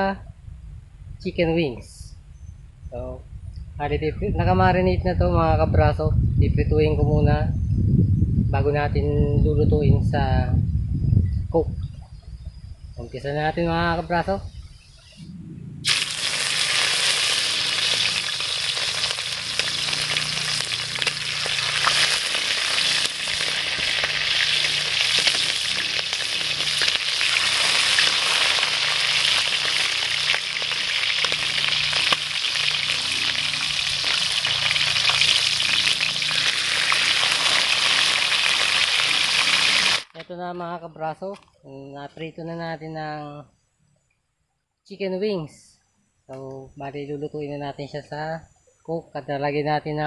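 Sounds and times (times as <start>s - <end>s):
chicken wings deep-frying in oil: 15.8s - 40.2s.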